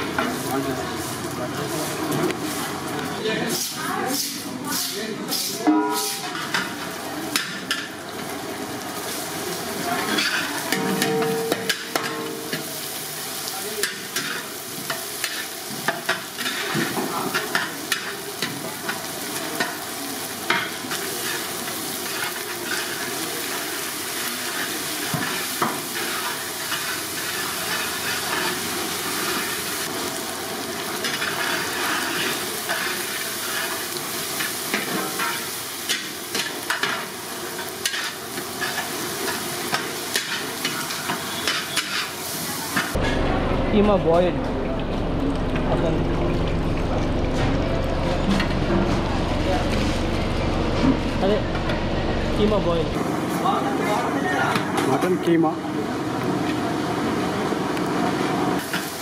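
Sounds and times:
food sizzling in hot oil: 0.0 - 43.0, 53.0 - 59.0
metal spatula scraping a pan: 3.4 - 6.8, 10.0 - 12.7, 13.8 - 18.1, 20.5 - 23.2, 24.5 - 28.6, 31.0 - 33.8, 37.8 - 39.4, 40.1 - 42.2.

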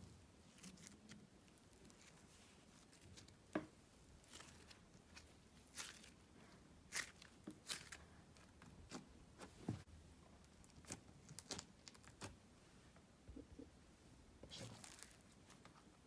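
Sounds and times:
slime crackling and squishing: 4.2 - 9.1, 10.4 - 12.4.

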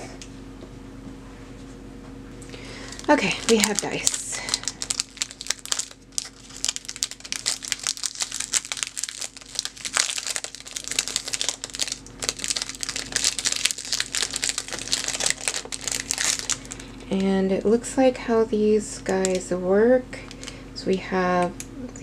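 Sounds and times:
plastic packaging crinkling: 2.5 - 17.4, 19.1 - 19.4, 20.2 - 20.6.

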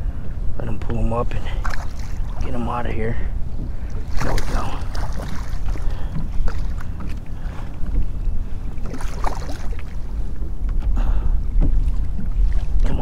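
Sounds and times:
water lapping and splashing: 0.0 - 13.0
wind rumbling on microphone: 0.0 - 13.0
fish thrashing at water surface: 4.0 - 7.0.

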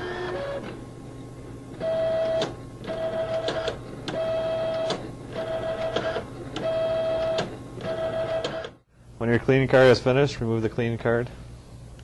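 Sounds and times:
printer motor whirring: 0.0 - 0.8, 1.7 - 8.8.

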